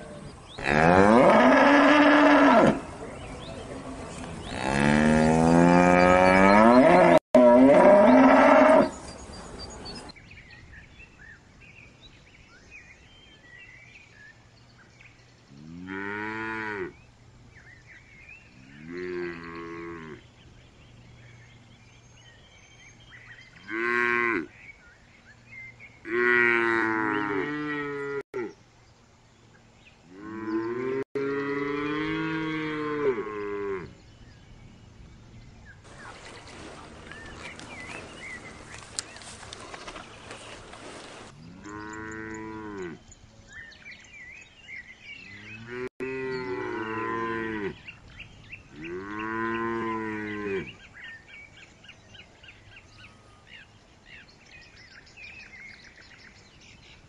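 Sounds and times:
cattle mooing: 0.6s - 2.8s, 4.4s - 8.9s.

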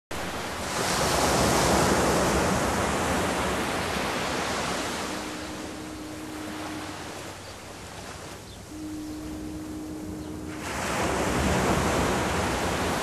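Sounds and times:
faint low tone: 8.5s - 12.2s.

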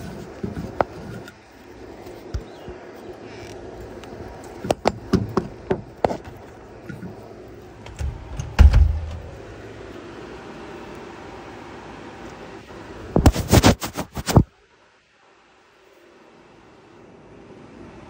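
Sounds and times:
steady low hum: 0.0s - 18.0s
heavy thump: 7.9s - 9.3s.

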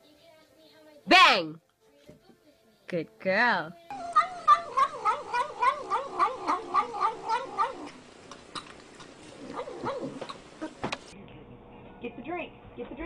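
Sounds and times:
cat making murmured calls while eating: 3.9s - 10.8s.

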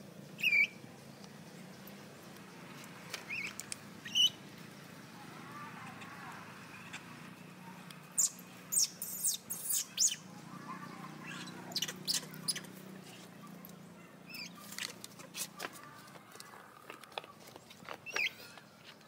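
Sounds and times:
high-pitched animal chirps: 8.2s - 10.2s, 11.2s - 12.7s.

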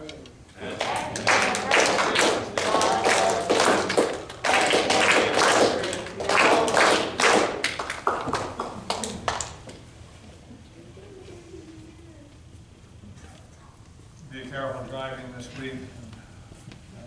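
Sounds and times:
congregation applauding: 0.6s - 9.7s.

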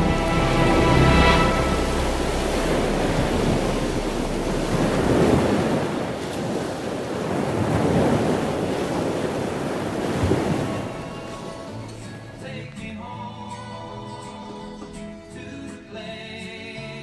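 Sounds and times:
ocean surf breaking on beach: 0.0s - 12.2s.

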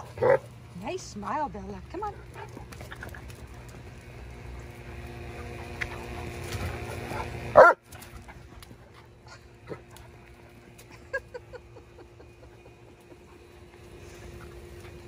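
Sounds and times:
dog barking: 0.2s - 0.4s, 7.6s - 7.8s.

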